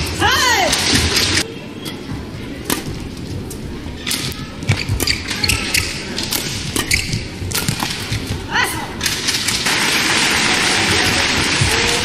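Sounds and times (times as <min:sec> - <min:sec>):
hall background noise: 0:00.0 - 0:12.0
rackets striking shuttlecock: 0:01.8 - 0:08.4.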